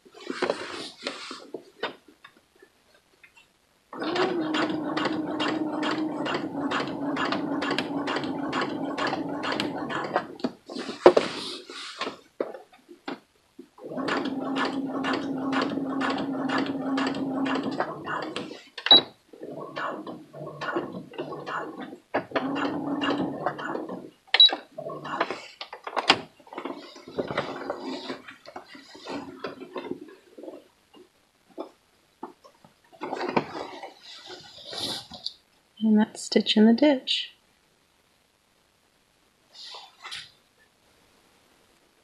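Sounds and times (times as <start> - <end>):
sewing machine motor hum: 4.0 - 10.4, 13.8 - 18.4.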